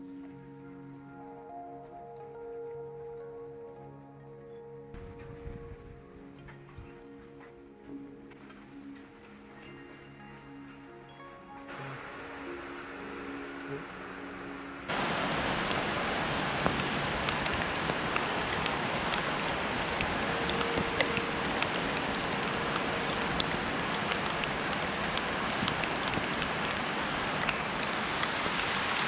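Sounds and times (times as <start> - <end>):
raindrops ticking on surfaces: 6.0 - 29.0
heavy rain pouring: 8.3 - 29.0.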